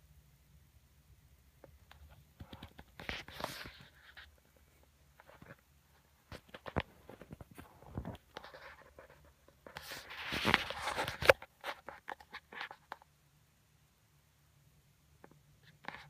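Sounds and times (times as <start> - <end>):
phone handling clicks and rustles: 6.3 - 8.5, 10.4 - 13.1.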